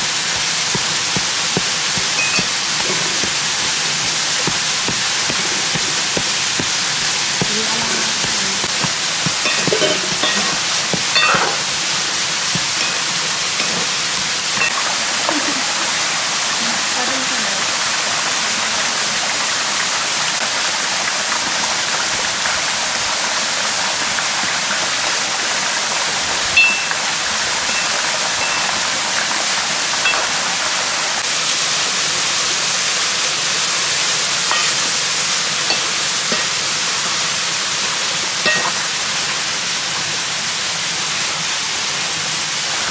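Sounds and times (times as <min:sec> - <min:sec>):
mountain stream rushing: 0:00.0 - 0:42.9
metal ladle clinking on pot: 0:00.7 - 0:06.8, 0:08.2 - 0:11.7, 0:12.5 - 0:14.0, 0:26.6 - 0:27.0, 0:27.6 - 0:28.8, 0:30.1 - 0:30.4, 0:34.5 - 0:35.0, 0:35.7 - 0:36.6, 0:38.4 - 0:38.9.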